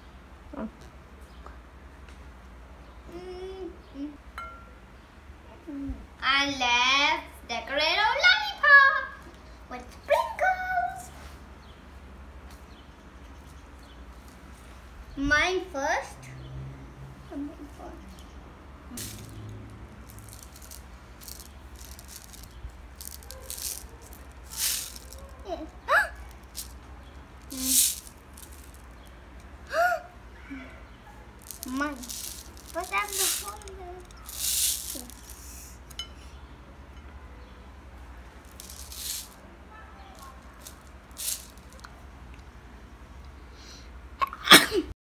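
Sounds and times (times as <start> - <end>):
sprinkles rattling in plastic shaker: 19.0 - 25.5, 26.2 - 29.1, 31.4 - 35.7, 38.4 - 39.4, 40.1 - 41.9.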